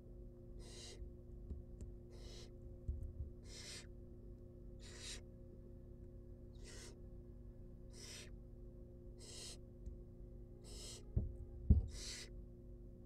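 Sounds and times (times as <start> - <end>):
owl nestling hissing: 0.6 - 1.0, 2.1 - 2.5, 3.4 - 3.9, 4.8 - 5.3, 6.6 - 7.0, 7.9 - 8.4, 9.2 - 9.6, 10.6 - 11.1, 11.9 - 12.3.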